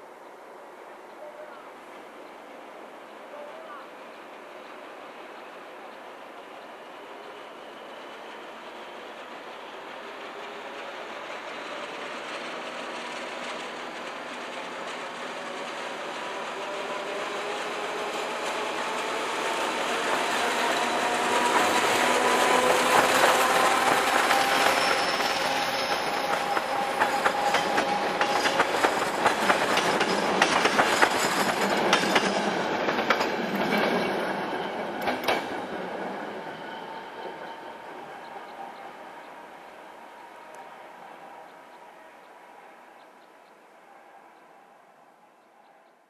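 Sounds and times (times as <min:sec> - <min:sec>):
diesel locomotive engine: 0:00.1 - 0:46.0
train wheels clicking over rail joints: 0:17.1 - 0:36.5.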